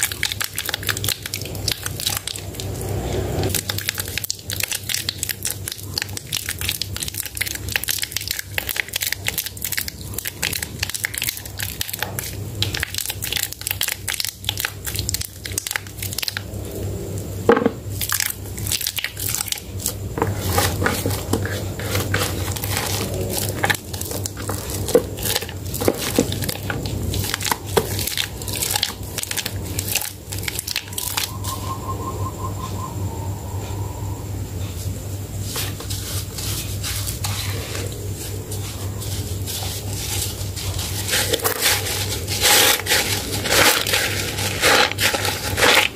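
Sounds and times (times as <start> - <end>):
wet soap crackling and squishing: 0.0 - 2.8, 3.5 - 16.4, 18.0 - 31.4.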